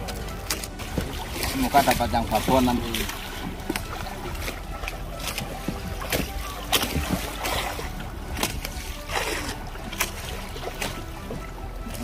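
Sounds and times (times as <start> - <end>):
water splashing against boat: 0.0 - 12.0.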